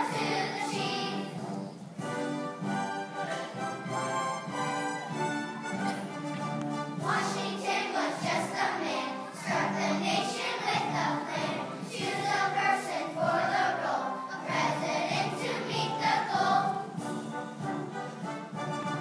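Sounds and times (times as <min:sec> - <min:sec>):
children's choir singing: 0:00.0 - 0:01.8, 0:07.0 - 0:17.2
instrumental accompaniment: 0:00.0 - 0:19.0.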